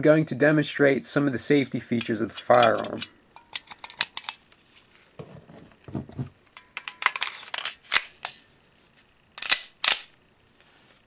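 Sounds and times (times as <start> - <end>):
pistol metallic clicks and clacks: 2.0 - 4.4, 9.4 - 10.1.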